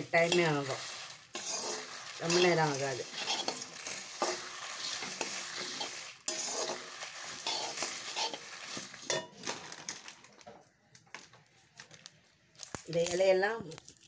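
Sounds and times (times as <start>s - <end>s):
spices scraped round a wok: 0.0s - 9.4s
roasting seeds crackling: 0.0s - 14.0s.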